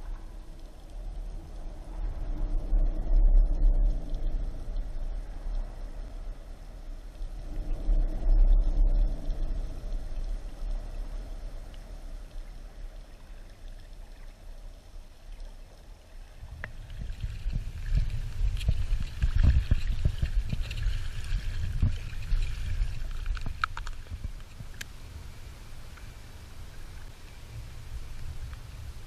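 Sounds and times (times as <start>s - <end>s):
muffled underwater rumble: 0.0s - 29.0s
trickling water: 0.0s - 29.0s.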